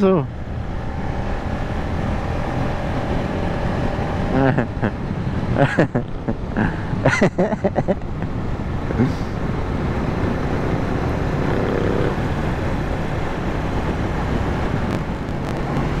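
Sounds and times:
motorcycle engine cruising: 0.0s - 6.8s, 8.0s - 16.0s
wind noise: 0.3s - 16.0s.

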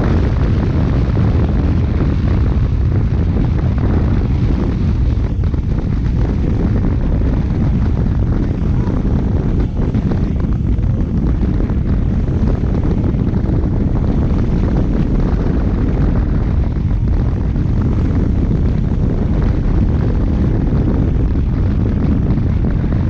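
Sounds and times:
motorcycle engine running: 0.0s - 23.0s
wind roar on microphone: 0.0s - 23.0s.

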